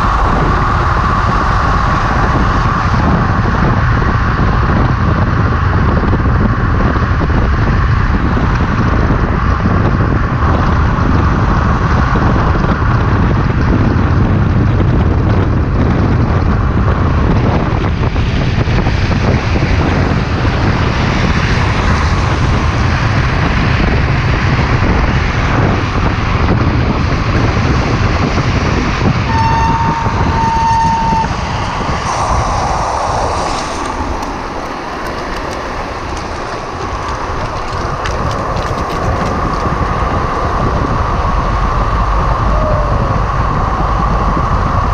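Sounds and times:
wheels rolling on asphalt: 0.0 - 44.9
wind buffeting microphone: 0.0 - 44.9
steady high tone: 29.3 - 34.9.

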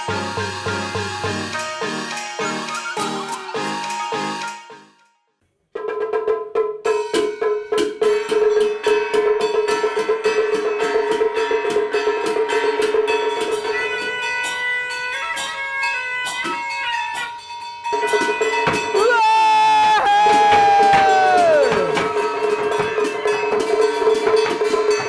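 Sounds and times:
fast percussion strikes: 0.0 - 4.7, 5.8 - 15.5, 17.9 - 25.0
melodic line: 0.0 - 5.1.

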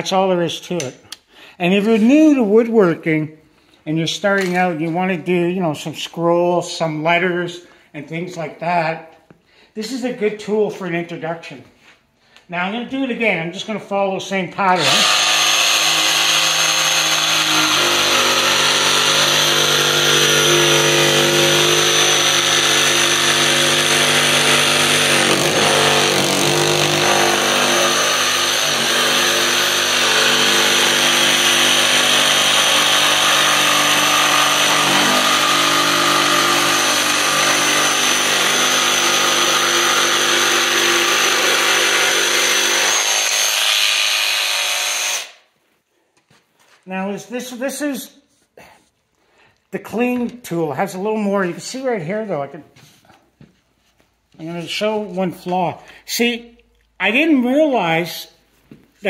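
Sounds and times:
jigsaw cutting wood: 14.8 - 45.4.

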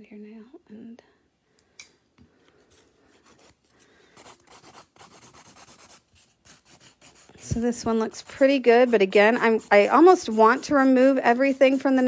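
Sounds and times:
nail file rasping: 4.2 - 12.0.

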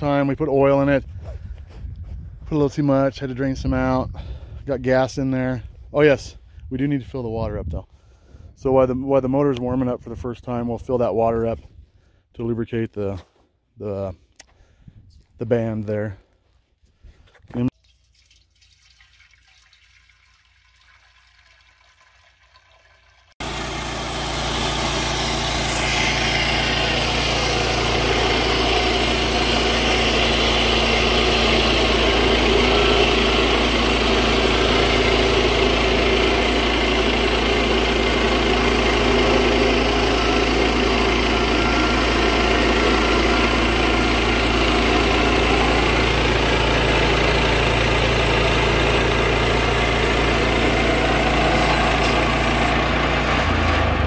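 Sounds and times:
water trickling faintly: 17.7 - 23.3
sawmill engine running: 23.4 - 54.0.

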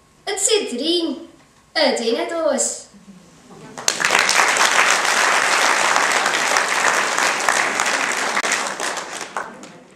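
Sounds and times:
audience applauding: 3.7 - 9.9.

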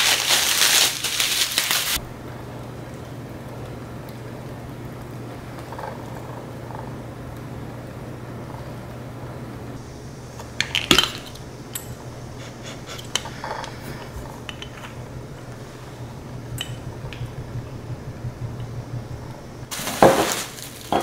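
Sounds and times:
steady low hum: 1.9 - 21.0
grinder bottle clicking and clinking: 12.8 - 17.4, 19.8 - 21.0.

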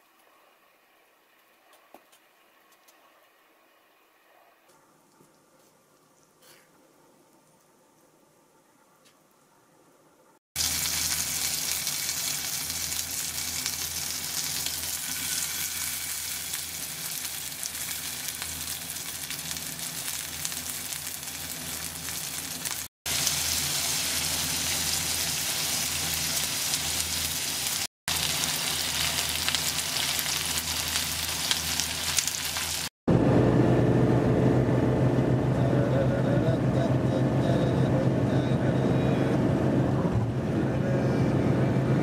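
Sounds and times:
pork sizzling in a pan: 10.6 - 32.9.

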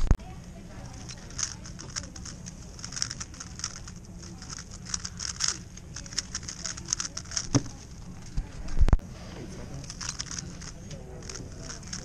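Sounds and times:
puzzle cube clicking: 0.8 - 8.1, 9.9 - 12.0.

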